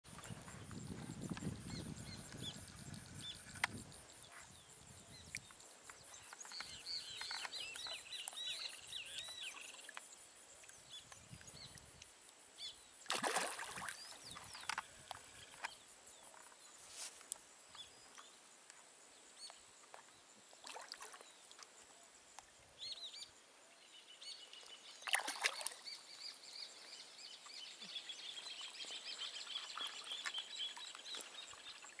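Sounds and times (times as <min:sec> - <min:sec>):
fish splashing at water surface: 0:13.1 - 0:14.1.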